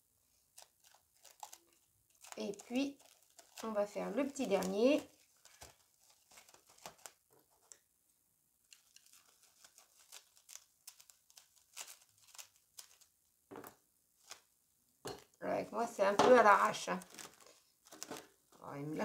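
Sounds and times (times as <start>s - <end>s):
cling film crinkling: 0.5s - 7.9s, 8.6s - 13.2s, 14.2s - 14.5s, 16.4s - 19.0s.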